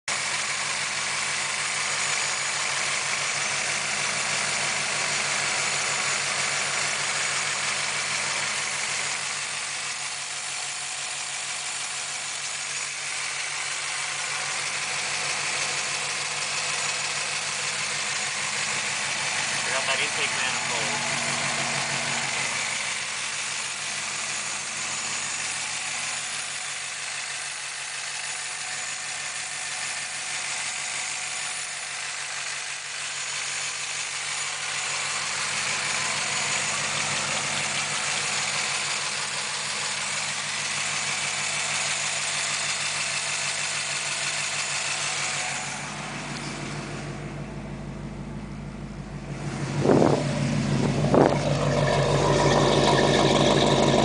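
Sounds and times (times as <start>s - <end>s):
engine idling: 0.1s - 54.0s
deep exhaust note: 18.1s - 24.2s, 45.7s - 54.0s.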